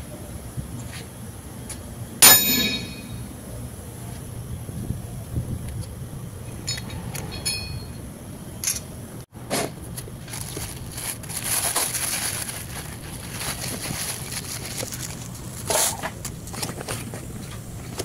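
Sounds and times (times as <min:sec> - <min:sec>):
plastic wrapping crinkling: 0:09.9 - 0:18.0.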